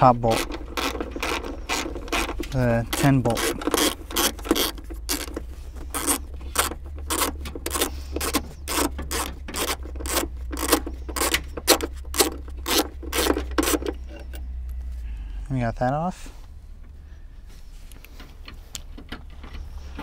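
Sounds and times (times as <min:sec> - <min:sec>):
hand ratchet clicking: 0:00.0 - 0:14.4.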